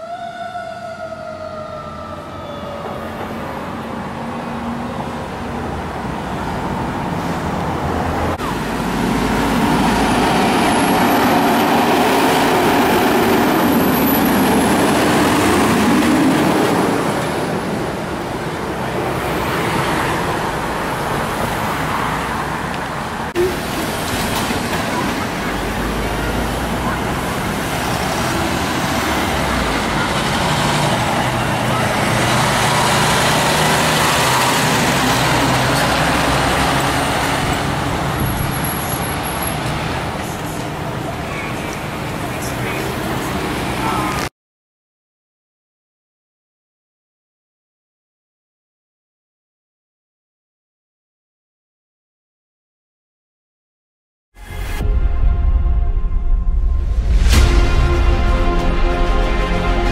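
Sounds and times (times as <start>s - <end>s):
cars passing: 0.0s - 44.3s, 56.6s - 59.9s
fire truck diesel engines: 0.0s - 44.3s.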